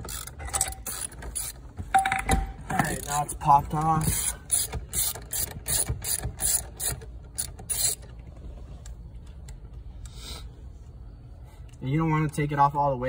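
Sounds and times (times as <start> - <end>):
socket ratchet clicking: 3.8 - 8.1.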